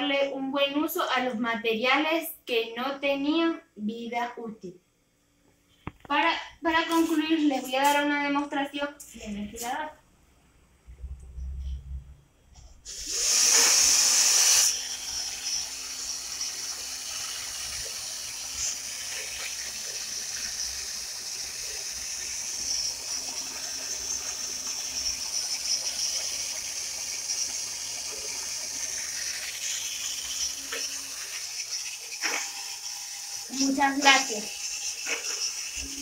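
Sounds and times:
small electric fan whirring: 12.8 - 36.0.

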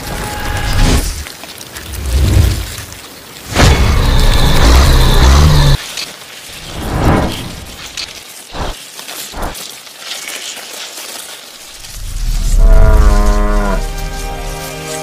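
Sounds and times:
cow mooing: 12.5 - 13.9.

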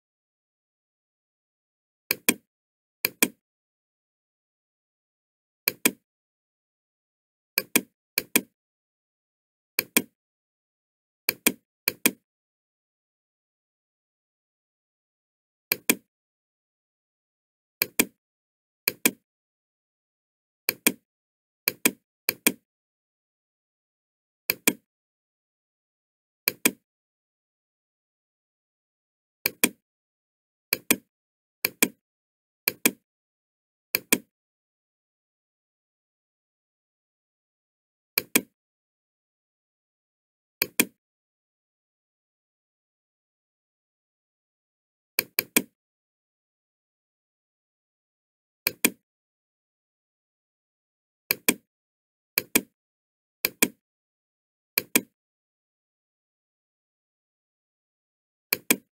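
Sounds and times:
computer mouse button clicking: 2.1 - 2.4, 9.8 - 10.1, 29.5 - 29.8, 30.8 - 31.1, 34.0 - 34.3, 38.2 - 38.5, 40.6 - 41.0, 45.2 - 45.7, 48.7 - 49.0, 51.3 - 51.6, 53.4 - 53.8, 54.8 - 55.1, 58.5 - 58.9
mouse button clicks: 2.1 - 2.4, 58.5 - 58.9.

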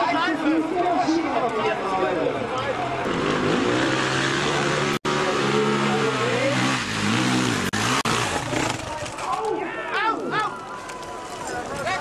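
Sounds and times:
motorcycle engine revving: 3.0 - 9.2.

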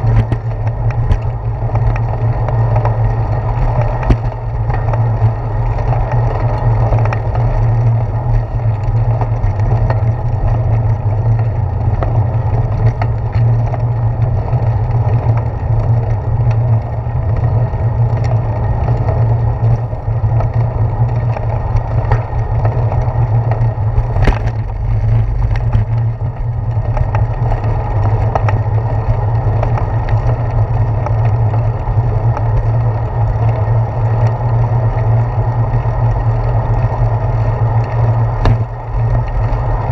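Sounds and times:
small clicks and knocks: 0.0 - 14.3, 18.1 - 28.7
wind and tyre rumble: 0.0 - 39.9.

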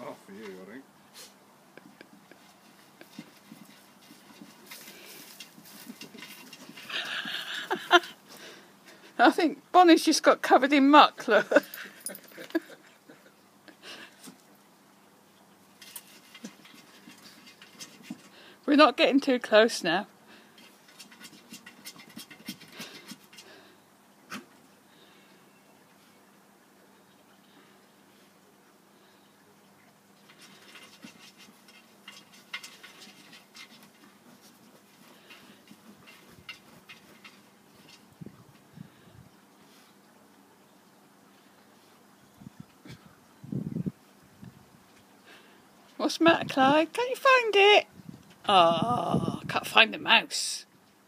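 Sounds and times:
dog paws scratching in soil: 0.0 - 10.0, 15.7 - 19.8, 20.4 - 23.7, 30.2 - 39.0
dog digging in soil: 2.4 - 7.5.

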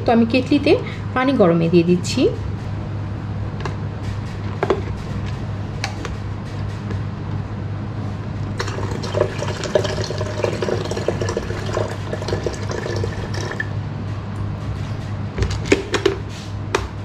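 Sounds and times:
water pouring into kettle: 8.6 - 13.7.

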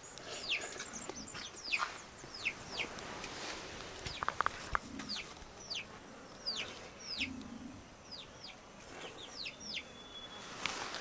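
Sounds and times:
chicks peeping: 0.2 - 3.3, 4.1 - 7.5, 8.1 - 9.9.

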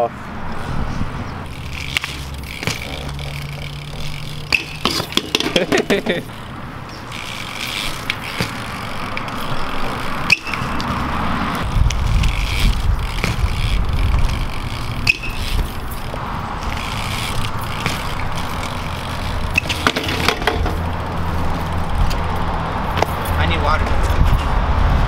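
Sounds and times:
bike tyres scraping on concrete: 0.5 - 25.0
bike clattering: 1.4 - 24.5
bike landing knocks: 1.9 - 9.2, 12.8 - 16.2, 17.0 - 20.9.

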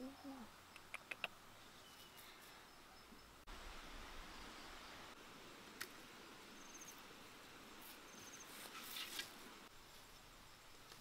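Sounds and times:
cricket chirping: 0.0 - 5.2, 6.2 - 8.7, 9.6 - 11.0
rustle of grass and leaves: 3.5 - 11.0.

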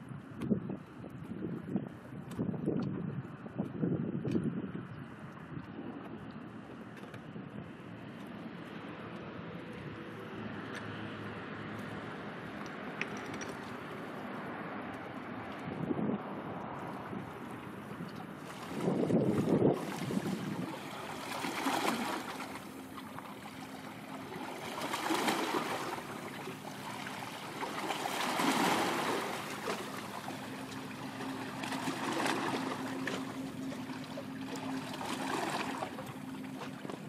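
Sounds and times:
waves washing in: 7.8 - 37.0
steady low hum: 14.0 - 37.0.

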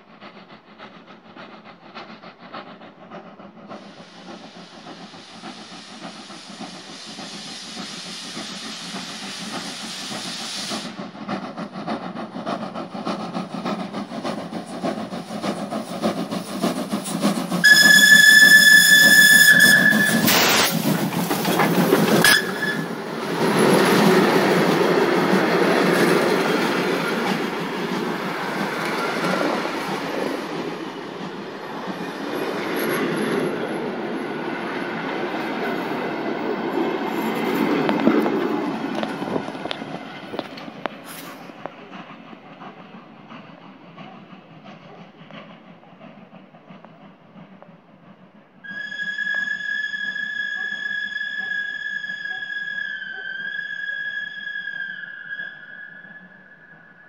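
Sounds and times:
steam locomotive exhaust beats: 0.0 - 57.0
coaches rolling with wheel clatter: 11.7 - 34.3
steam whistle blast: 17.6 - 20.8, 22.2 - 23.7, 48.6 - 57.0.

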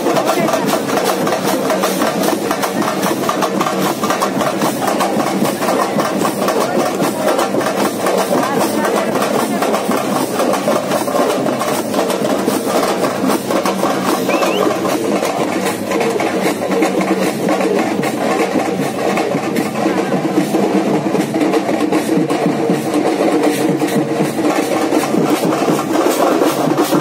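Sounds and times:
music with drumming and percussion: 0.0 - 27.0.

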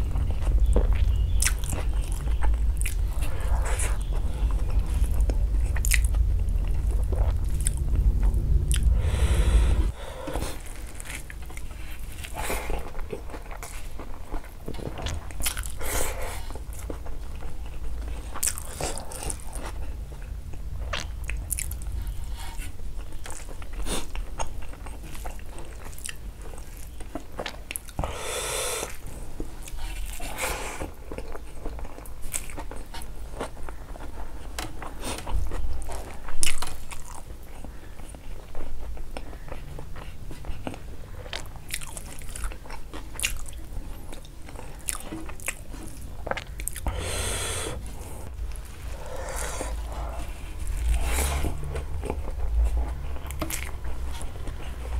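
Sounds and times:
low hum: 0.0 - 15.8, 16.5 - 24.6, 46.0 - 54.9
person chewing food: 0.0 - 54.9.

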